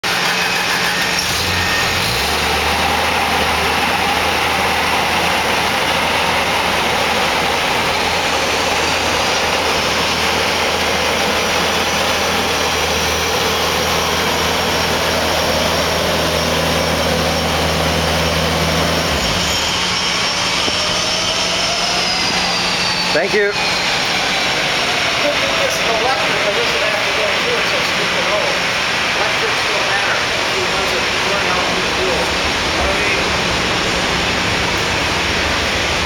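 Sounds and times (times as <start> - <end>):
floor sweeper engine hum: 0.0 - 36.0
loud rushing noise: 0.0 - 36.0.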